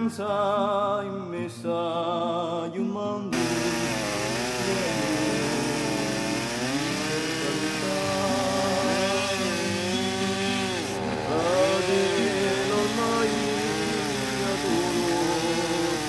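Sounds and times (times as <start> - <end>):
chainsaw cutting through log: 3.4 - 16.0.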